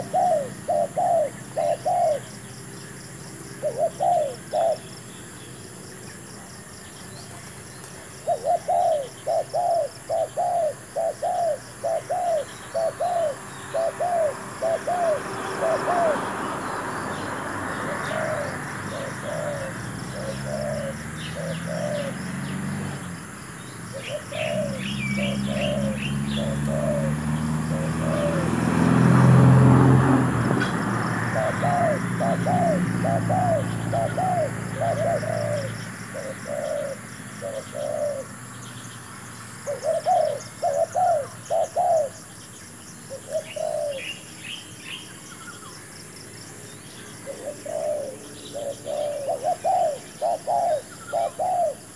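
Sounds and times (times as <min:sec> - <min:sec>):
doves cooing: 0:00.0 - 0:38.9, 0:39.5 - 0:51.9
small birds twittering: 0:00.0 - 0:51.9.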